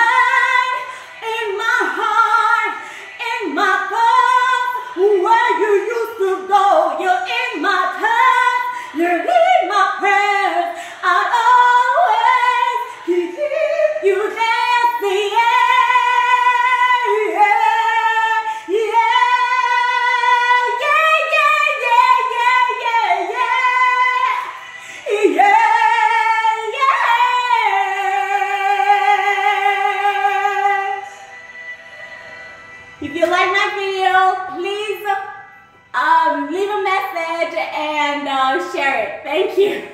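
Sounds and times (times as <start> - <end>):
woman singing unaccompanied: 0.0 - 31.0.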